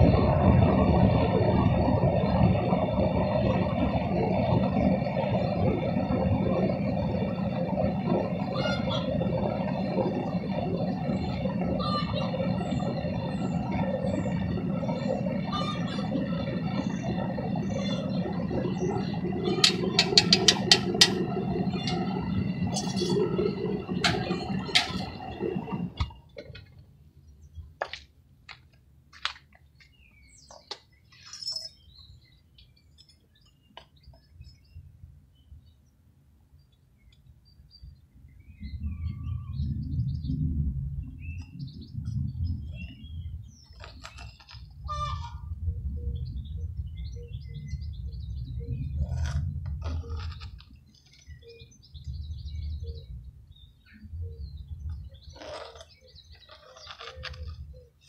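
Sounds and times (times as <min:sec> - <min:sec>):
propane burner roaring: 0:00.0 - 0:26.7
sharp metallic knocks: 0:19.5 - 0:21.2.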